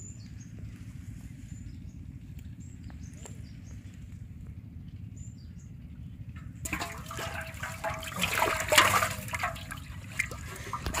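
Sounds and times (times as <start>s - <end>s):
fish splashing in a metal pot: 6.4s - 11.0s.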